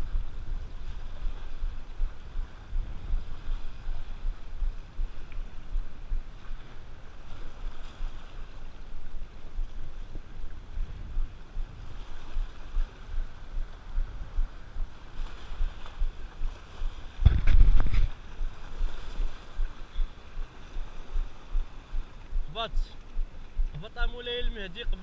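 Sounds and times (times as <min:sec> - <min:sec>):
wind buffeting microphone: 0:00.0 - 0:25.0
small waves breaking on rocks: 0:06.3 - 0:10.2.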